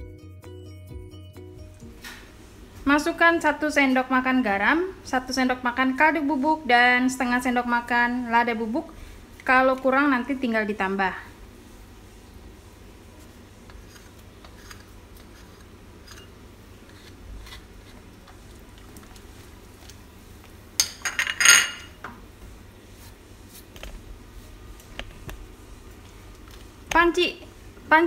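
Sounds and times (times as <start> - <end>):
ladle scraping: 13.2 - 20.0
cookware and utensils clinking: 20.8 - 22.0.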